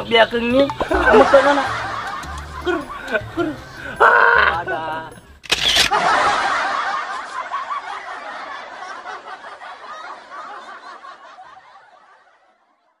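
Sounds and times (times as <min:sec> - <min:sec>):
crowd laughing: 0:00.8 - 0:04.7, 0:05.8 - 0:13.0.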